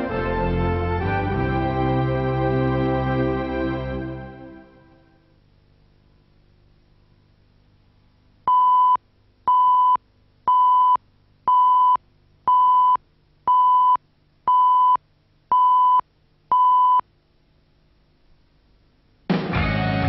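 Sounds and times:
electronic countdown beeps: 0:08.5 - 0:17.0.

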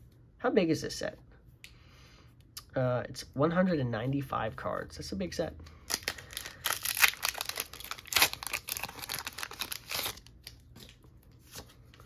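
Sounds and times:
foil wrapper tearing and crinkling: 0:05.9 - 0:10.6.

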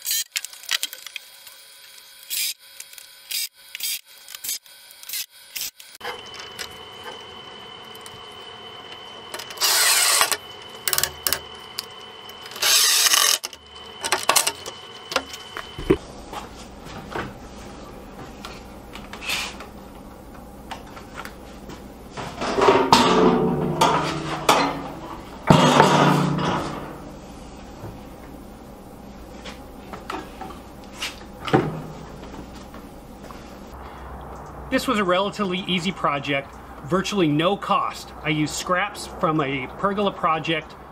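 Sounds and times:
drill driving screws: 0:02.2 - 0:06.7, 0:09.3 - 0:15.4
metal tub scraping and knocking: 0:22.2 - 0:27.1.

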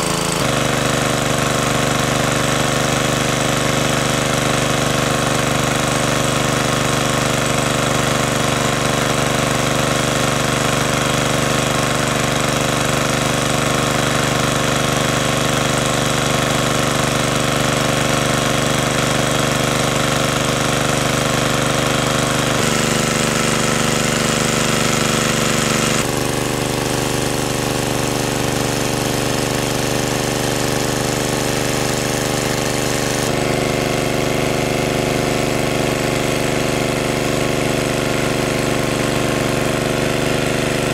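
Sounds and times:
small engine water pump running: 0:00.0 - 0:40.9.

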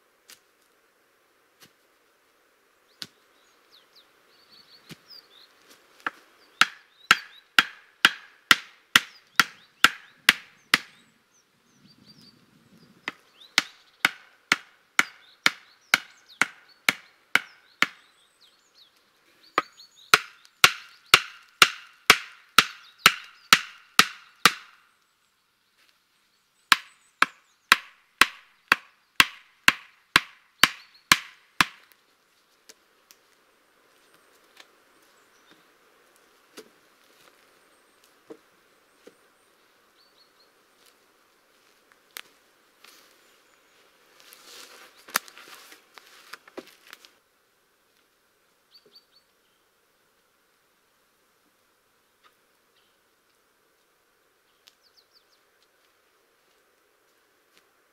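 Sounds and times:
hatchet knocking wooden stakes: 0:06.0 - 0:11.0, 0:13.1 - 0:18.0, 0:19.6 - 0:24.8, 0:26.7 - 0:31.9.

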